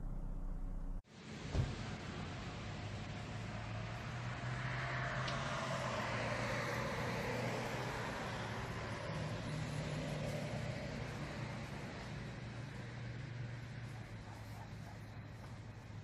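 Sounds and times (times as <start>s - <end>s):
steady low hum: 0.0s - 1.0s
vehicle passing: 1.7s - 16.0s.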